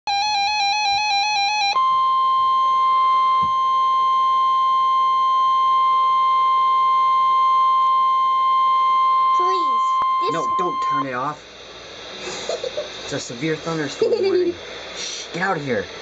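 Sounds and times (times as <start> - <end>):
steady warning alarm tone: 0.1 - 11.5
two-pitch warble alert: 9.2 - 11.1.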